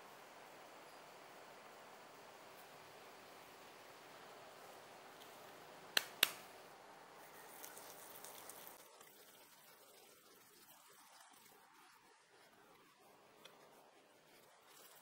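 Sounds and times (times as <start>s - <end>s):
sharp clicks: 6.0s - 6.4s.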